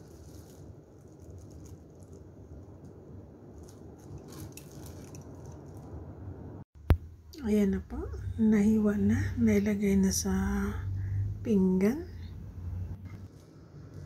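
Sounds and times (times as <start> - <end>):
plastic glove crinkling: 0.0 - 6.2
steady low hum: 0.0 - 14.0.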